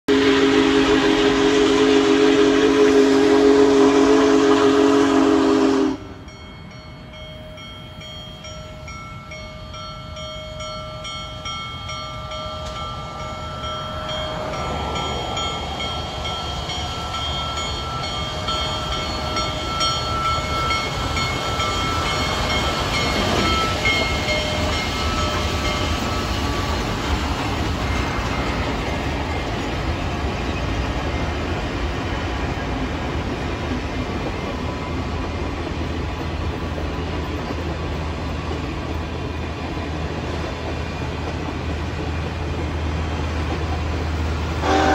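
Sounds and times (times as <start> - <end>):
steam whistle chord: 0.1 - 6.4, 44.6 - 44.9
train wheels rumbling: 0.1 - 44.9
locomotive bell ringing: 5.1 - 32.8, 34.1 - 35.9, 42.2 - 44.9.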